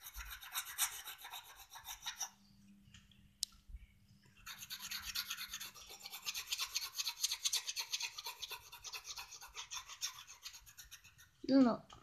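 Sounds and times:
pencil shading on wood: 0.0 - 2.3, 4.4 - 11.4.

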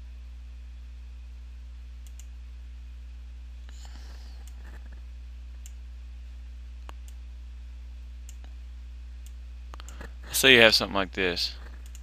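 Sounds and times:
low electrical hum: 0.0 - 12.0
computer mouse clicks: 2.0 - 2.3, 11.6 - 12.0.

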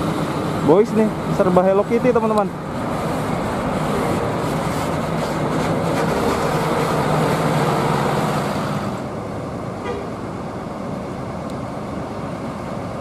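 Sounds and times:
bus diesel engine driving past: 0.0 - 13.0.

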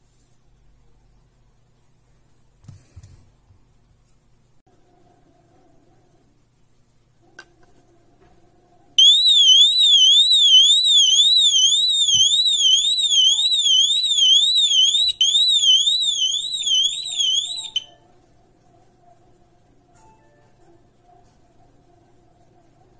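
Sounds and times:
high warbling alarm tone: 9.0 - 17.9.

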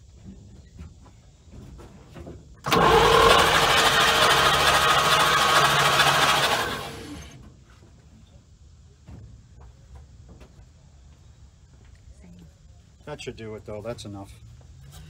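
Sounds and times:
engine starter cranking: 2.6 - 7.4.

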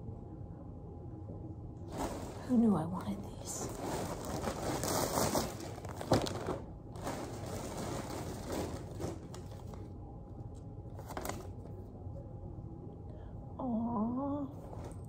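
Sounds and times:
tissue paper crinkling: 1.9 - 2.6, 3.5 - 9.8.

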